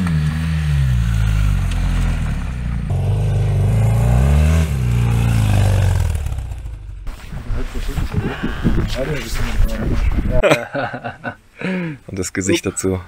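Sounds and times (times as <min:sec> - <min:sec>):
motorcycle engines revving: 0:00.0 - 0:07.1.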